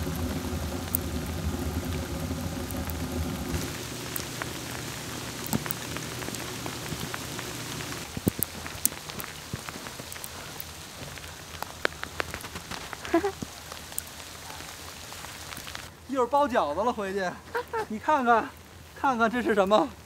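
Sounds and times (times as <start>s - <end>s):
low steady hum: 0.0s - 12.1s
snow pellets pattering: 0.0s - 20.0s.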